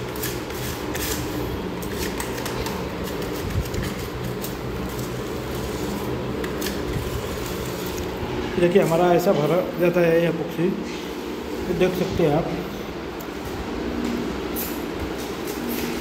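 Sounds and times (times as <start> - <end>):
hand tool scraping grout: 0.0 - 9.0
mechanical hum: 0.0 - 16.0.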